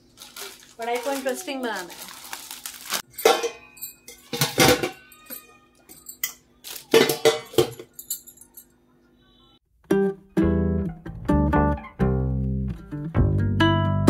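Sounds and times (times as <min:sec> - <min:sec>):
metal containers clanking: 0:03.0 - 0:08.6.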